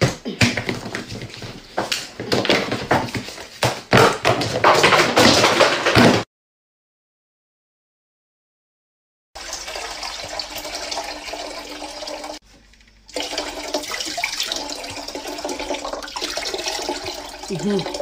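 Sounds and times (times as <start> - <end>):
water pouring into a metal saucepan: 9.4 - 12.4, 13.1 - 18.0.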